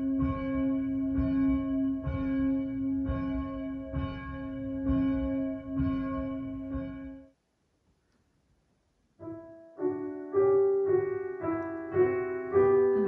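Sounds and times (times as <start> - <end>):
church bell tolling: 0.0 - 7.2.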